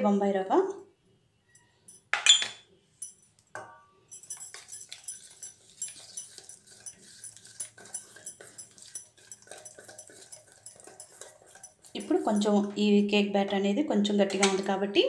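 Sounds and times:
spatula scraping a steel bowl: 0:04.2 - 0:12.7.

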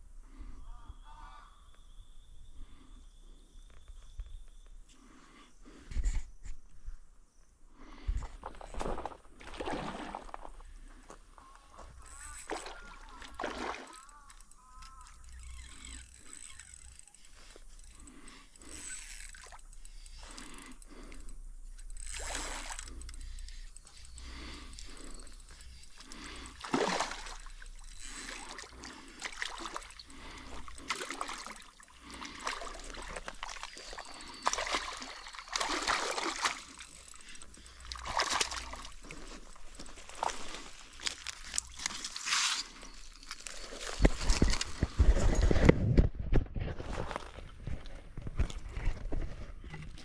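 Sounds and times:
fish splashing in water: 0:12.3 - 0:16.8, 0:26.0 - 0:42.4
dry leaves and twigs crunching: 0:32.6 - 0:45.6.

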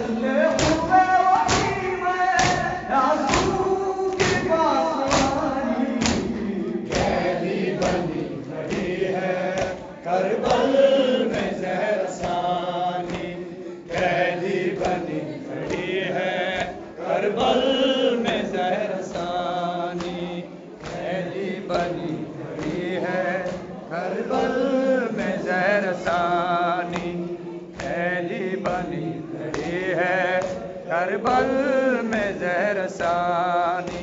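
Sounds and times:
men chanting a lament: 0:00.0 - 0:34.0
hands beating on chests: 0:00.5 - 0:06.3.

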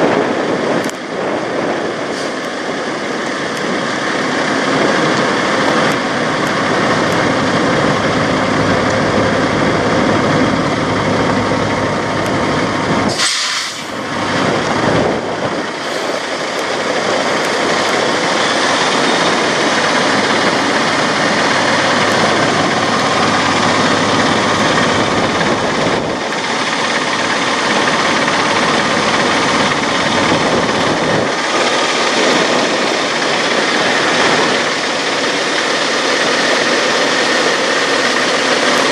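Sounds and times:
diesel truck engines idling: 0:00.0 - 0:38.9
short hiss: 0:13.1 - 0:14.0.

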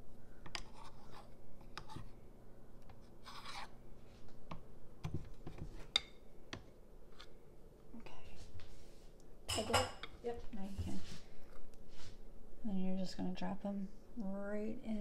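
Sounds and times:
spoon scraping batter: 0:00.5 - 0:02.2, 0:02.8 - 0:03.8.

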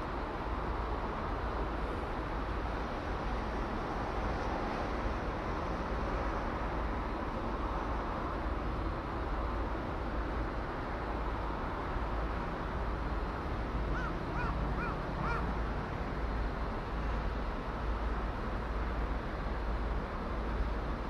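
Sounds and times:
crow cawing: 0:13.9 - 0:15.5.

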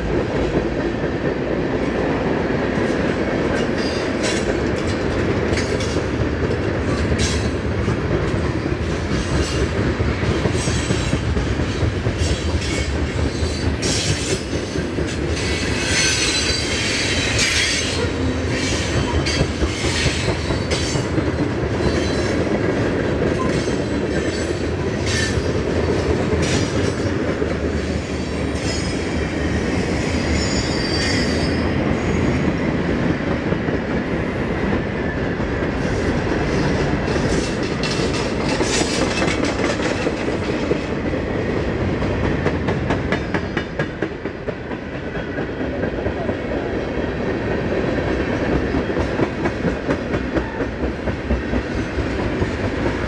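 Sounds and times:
train wheels rumbling on rail: 0:00.0 - 0:53.0
high-pitched wheel squeal: 0:30.0 - 0:32.2.

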